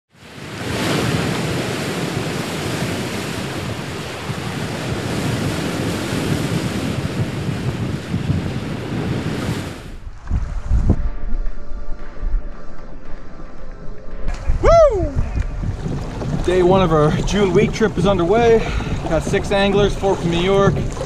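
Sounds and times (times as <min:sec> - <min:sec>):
ocean waves: 0:00.1 - 0:10.4, 0:12.9 - 0:21.0
wind: 0:00.1 - 0:21.0
low thumps: 0:09.9 - 0:21.0.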